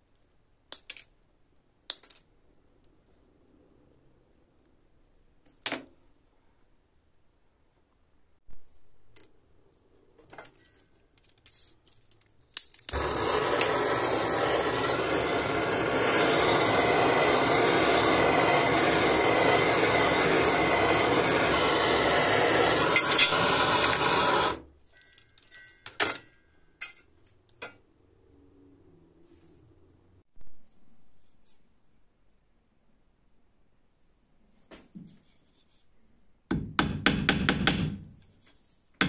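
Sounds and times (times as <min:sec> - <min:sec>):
gas torch hissing: 0:12.9 - 0:24.6.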